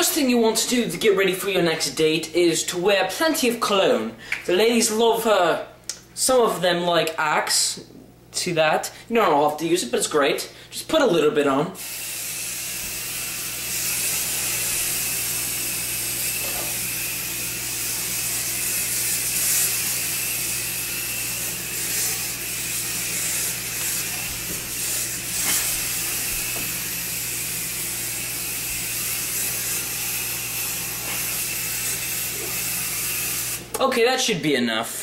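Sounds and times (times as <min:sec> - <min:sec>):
aerosol spray hissing: 0:11.8 - 0:33.8.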